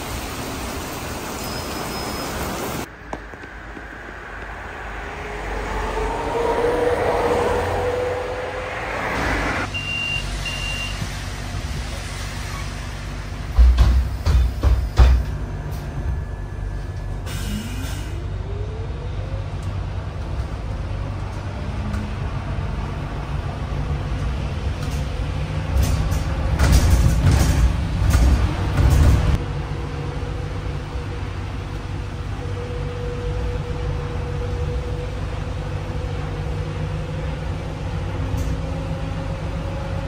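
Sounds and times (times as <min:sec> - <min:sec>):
trolleybus low rumble: 0:00.0 - 0:40.0
rising motor whine: 0:03.5 - 0:09.7.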